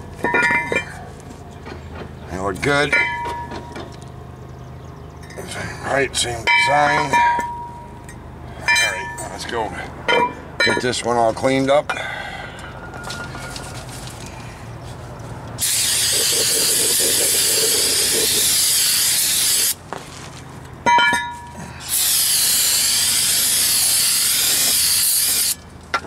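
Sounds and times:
aerosol spray hissing: 0:15.6 - 0:19.8, 0:21.9 - 0:25.6.

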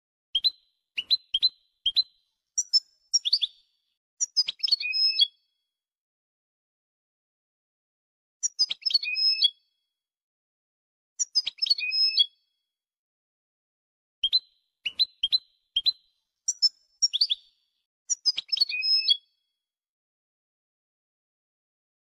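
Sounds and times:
short bird chirps: 0:00.3 - 0:05.4, 0:08.4 - 0:09.6, 0:11.2 - 0:12.4, 0:14.2 - 0:19.4
goldfinch twittering song: 0:00.4 - 0:05.4, 0:08.4 - 0:09.6, 0:11.2 - 0:12.4, 0:14.2 - 0:19.4.

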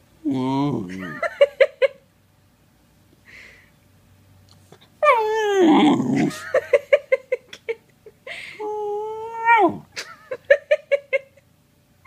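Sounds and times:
puppy whining growl: 0:00.2 - 0:01.2, 0:05.0 - 0:06.5, 0:08.6 - 0:09.9
puppy whining: 0:05.0 - 0:06.4, 0:08.6 - 0:09.9.

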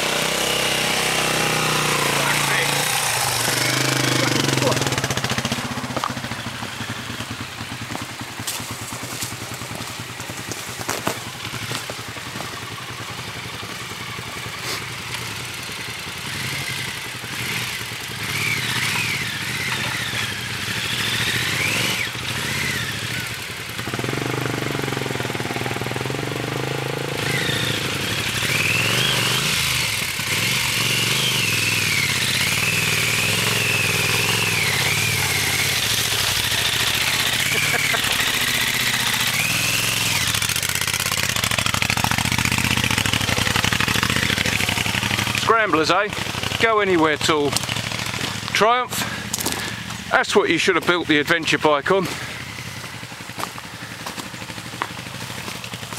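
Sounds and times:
motorcycle engine at low revs: 0:00.0 - 0:55.9.

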